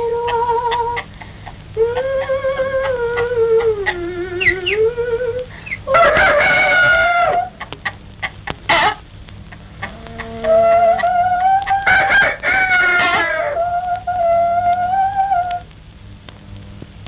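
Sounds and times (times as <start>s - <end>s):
chickens clucking: 0.0s - 15.6s
chicken wavering call: 0.0s - 15.7s
rooster crowing: 5.9s - 7.6s, 9.8s - 15.6s.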